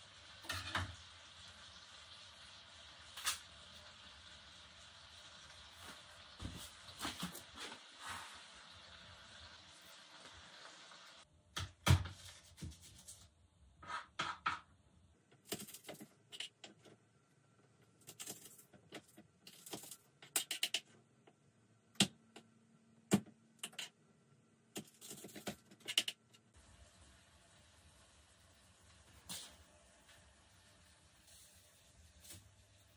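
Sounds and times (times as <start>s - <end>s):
steady hiss: 0.0s - 11.3s, 26.6s - 32.9s.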